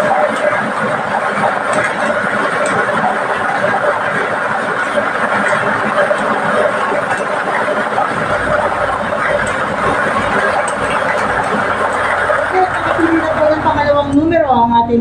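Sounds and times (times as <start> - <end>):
plastic balls clattering in drum: 0.0 - 14.0.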